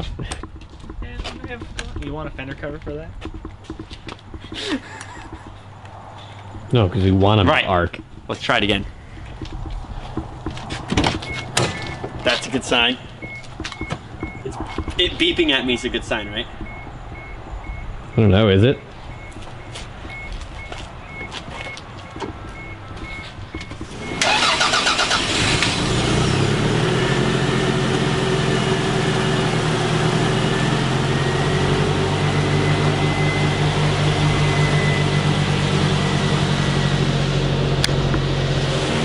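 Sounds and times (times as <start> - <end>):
rapid car beeps: 11.2 - 25.4, 30.8 - 36.1
car engine idling: 19.0 - 39.0
starter motor cranking: 23.8 - 25.9.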